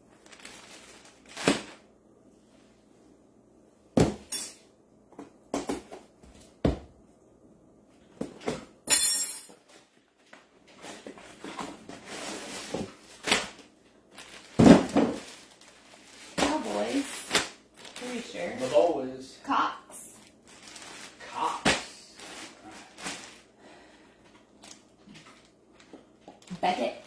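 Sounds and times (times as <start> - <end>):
plastic bag crackling: 0.1 - 1.8, 12.0 - 19.0, 20.2 - 23.6.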